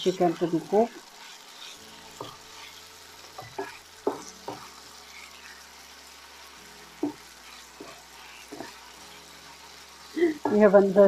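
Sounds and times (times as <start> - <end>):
chicken sizzling in oil: 0.0 - 11.0
spatula knocking and scraping pan: 1.2 - 5.6, 6.9 - 9.1, 10.4 - 10.7.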